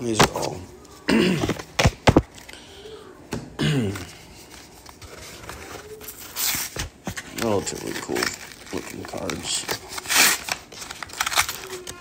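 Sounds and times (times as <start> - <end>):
card pack wrapper crinkling: 4.8 - 12.0.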